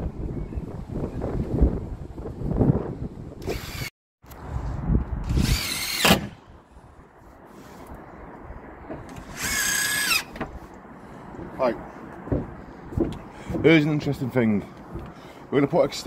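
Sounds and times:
cordless drill whining: 0:03.4 - 0:03.9, 0:05.3 - 0:06.3, 0:09.2 - 0:10.4.

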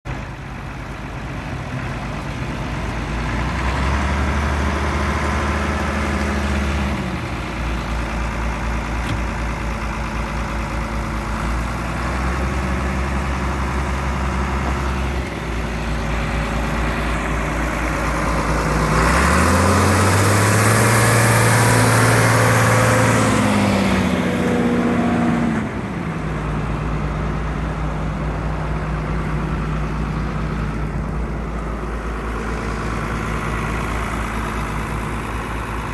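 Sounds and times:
tractor diesel engine revving: 0:00.1 - 0:35.9.

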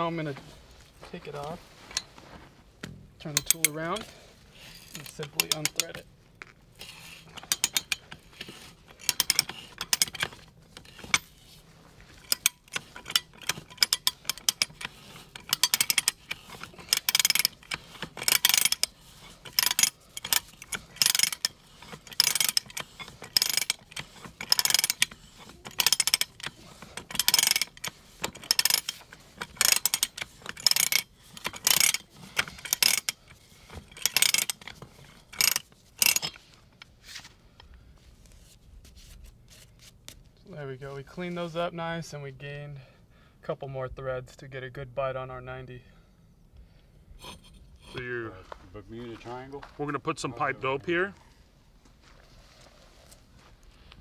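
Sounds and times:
ratchet clicking: 0:03.3 - 0:04.1, 0:04.8 - 0:06.0, 0:06.8 - 0:11.3, 0:12.2 - 0:36.4.

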